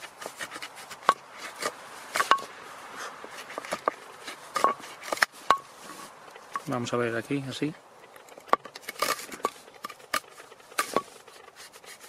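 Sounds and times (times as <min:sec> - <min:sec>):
knife sawing through rope: 0:09.9 - 0:12.0.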